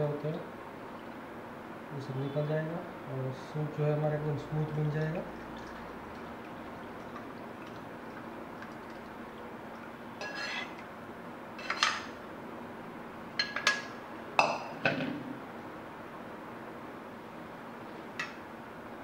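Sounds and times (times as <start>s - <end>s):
spoon scraping pan: 10.2s - 10.8s.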